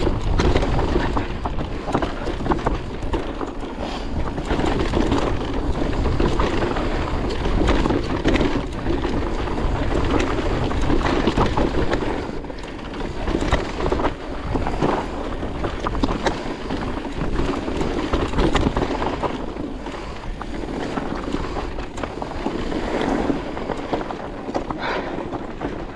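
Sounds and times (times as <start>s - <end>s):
bike knocks and rattles: 0.0s - 25.9s
tyres rolling on gravel: 0.0s - 25.9s
wind buffeting microphone: 0.0s - 25.9s.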